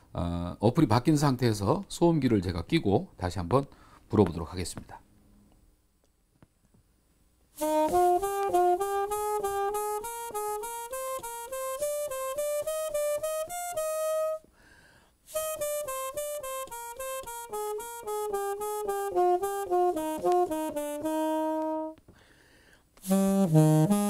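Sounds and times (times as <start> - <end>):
muted alto saxophone phrases: 7.6 - 14.4, 15.3 - 22.0, 23.0 - 24.0.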